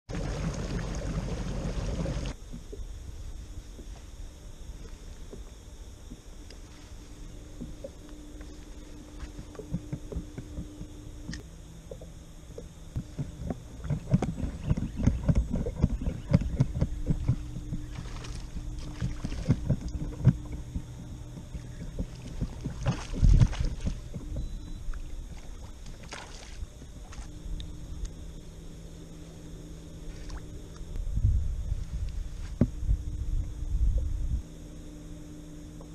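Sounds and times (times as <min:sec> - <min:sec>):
knocks and thumps on kayak hull: 0:11.9 - 0:24.6.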